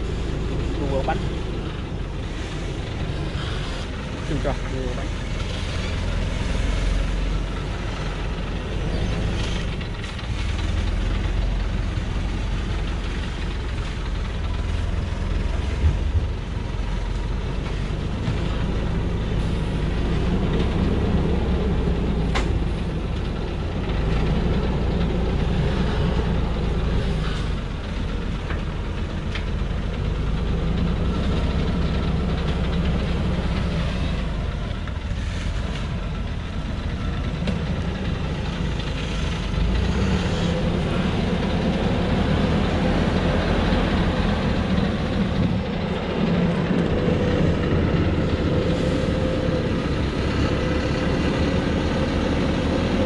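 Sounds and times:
diesel truck engine running low: 0:00.0 - 0:53.0.

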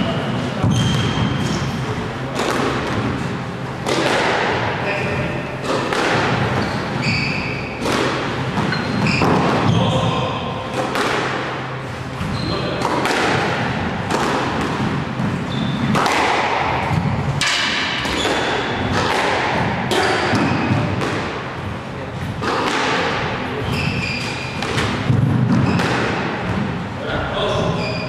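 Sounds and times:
shoes squeaking on court: 0:00.0 - 0:01.8, 0:06.4 - 0:07.9, 0:08.6 - 0:10.0, 0:12.0 - 0:12.8, 0:15.1 - 0:16.0, 0:23.6 - 0:26.0
squash ball knocks: 0:02.3 - 0:03.1, 0:03.8 - 0:04.7, 0:05.6 - 0:06.6, 0:12.8 - 0:21.4, 0:24.6 - 0:26.6.

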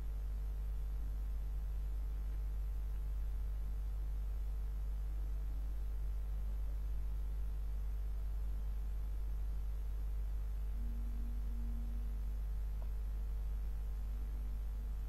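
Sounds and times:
low background hum: 0:00.0 - 0:15.0
faint high tone: 0:10.5 - 0:13.1.

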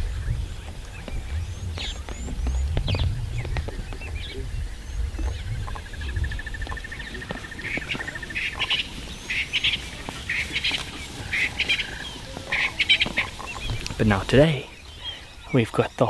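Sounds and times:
low rumble: 0:00.0 - 0:07.8
bird trilling: 0:00.0 - 0:15.7.

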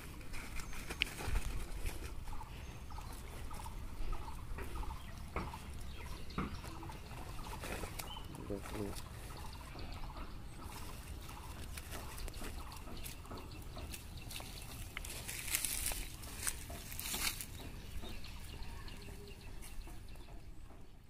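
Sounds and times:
rustles and clicks: 0:00.0 - 0:09.6, 0:10.6 - 0:19.9.

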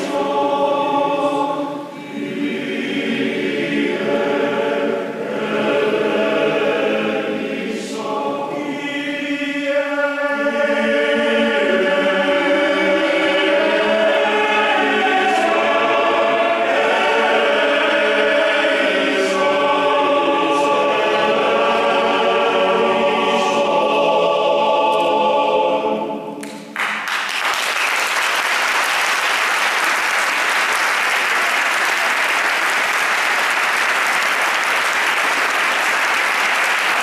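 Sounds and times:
male choir singing: 0:00.0 - 0:26.4
audience applauding: 0:26.4 - 0:37.0.

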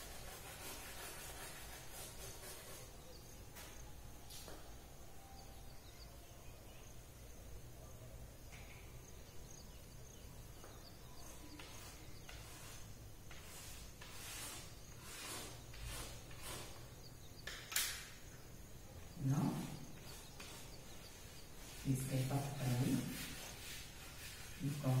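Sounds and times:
chalk scratching on blackboard: 0:00.0 - 0:03.7, 0:11.2 - 0:17.0, 0:19.4 - 0:25.0
background hiss: 0:00.0 - 0:25.0.

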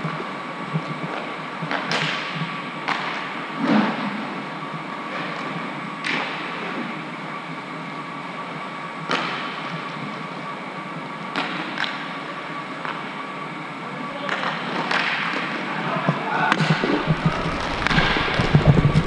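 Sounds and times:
inline skates rolling: 0:16.5 - 0:19.0
sharp skate clacks: 0:16.5 - 0:19.0.

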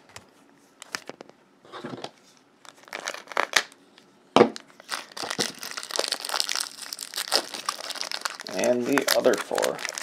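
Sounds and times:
foil packs crinkling: 0:02.6 - 0:03.8, 0:04.6 - 0:10.0.

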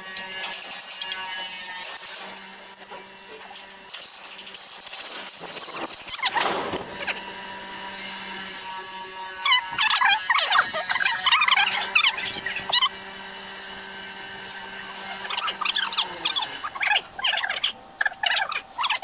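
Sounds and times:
metal squeaking and scraping: 0:03.5 - 0:07.4, 0:08.2 - 0:12.9, 0:14.4 - 0:19.0.

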